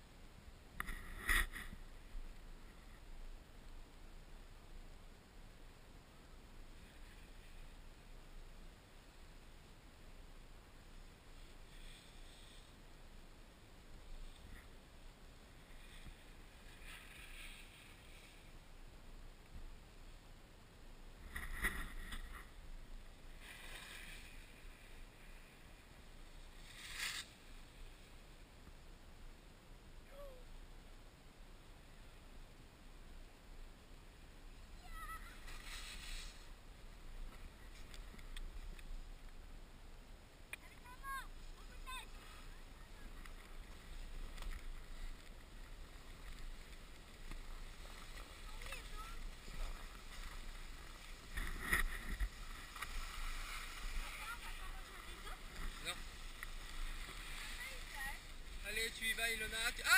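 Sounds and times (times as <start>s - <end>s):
skis swishing on snow: 15.6s - 18.6s, 23.3s - 28.2s, 35.0s - 38.1s, 41.4s - 59.9s
faint click: 37.3s - 39.4s.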